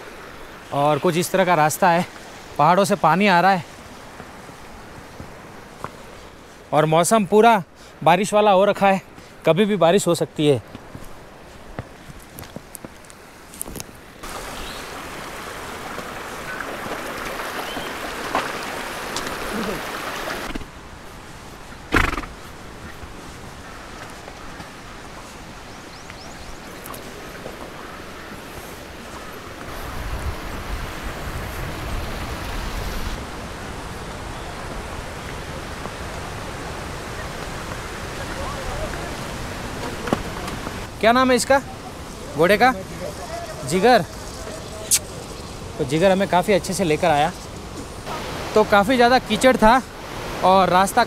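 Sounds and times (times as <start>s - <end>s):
stream rushing over cobbles: 0.0s - 10.6s, 11.2s - 51.0s
wind buffeting microphone: 29.6s - 40.9s.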